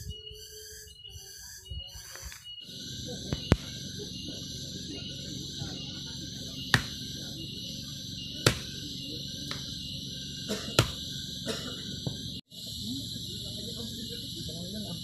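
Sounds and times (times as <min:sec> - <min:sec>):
insects trilling: 0:00.0 - 0:15.0
blade chopping firewood: 0:06.6 - 0:07.2, 0:08.4 - 0:08.8, 0:10.5 - 0:11.1.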